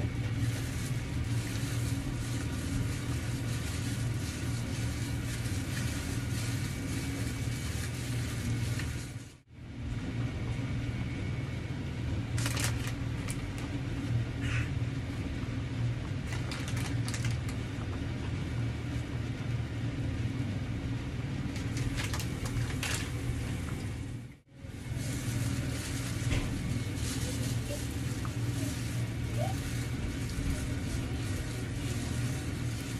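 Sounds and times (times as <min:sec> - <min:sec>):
steady low hum: 0:00.0 - 0:32.9
plastic packaging crinkling: 0:00.1 - 0:09.3, 0:12.4 - 0:13.8, 0:16.2 - 0:17.7, 0:21.5 - 0:23.8, 0:24.7 - 0:32.9.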